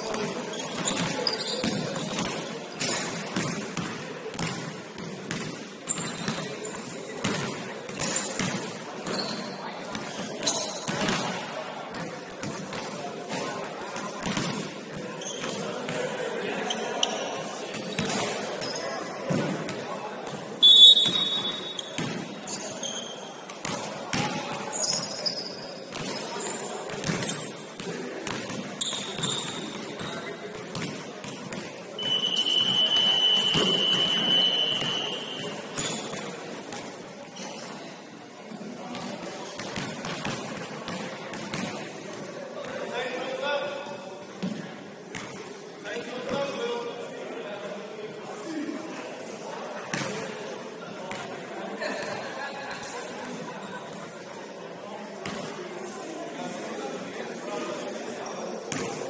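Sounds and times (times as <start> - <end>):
steady hall noise: 0.0 - 59.0
basketball bouncing on court: 0.2 - 11.3, 21.0 - 22.3, 26.9 - 32.1.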